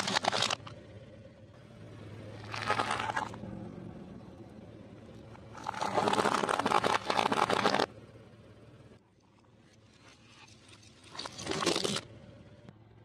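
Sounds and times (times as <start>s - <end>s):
tyre crushing crunchy snacks: 0.0s - 0.7s, 2.4s - 3.4s, 5.5s - 7.9s, 11.1s - 12.1s.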